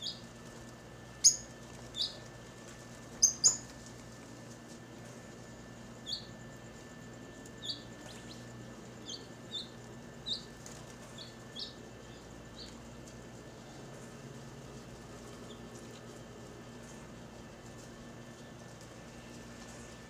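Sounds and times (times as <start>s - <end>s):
low background hum: 0.0s - 20.0s
lovebirds chirping: 1.2s - 2.2s, 3.2s - 3.7s, 7.6s - 10.5s, 11.1s - 12.8s.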